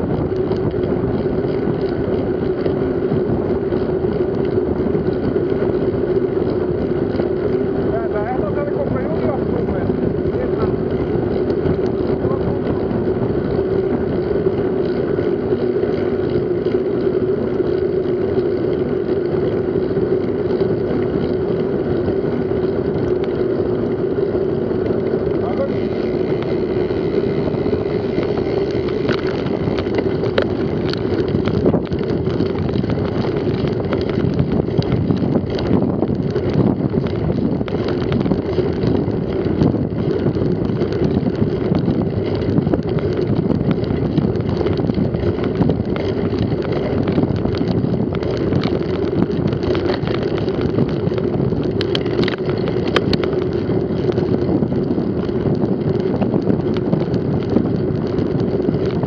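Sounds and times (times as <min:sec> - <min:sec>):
bike rattling clicks: 0:00.0 - 0:59.0
wind rushing over microphone: 0:00.0 - 0:59.0.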